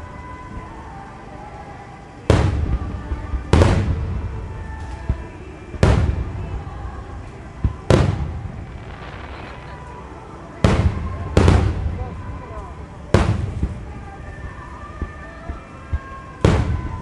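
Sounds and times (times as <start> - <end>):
firework shells booming: 2.3 - 10.0, 10.6 - 12.3, 13.1 - 14.0, 16.4 - 17.0.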